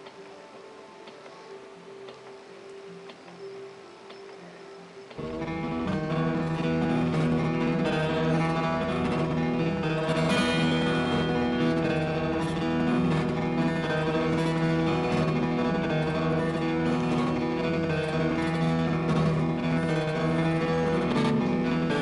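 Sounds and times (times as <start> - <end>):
guitar music: 5.0 - 22.0.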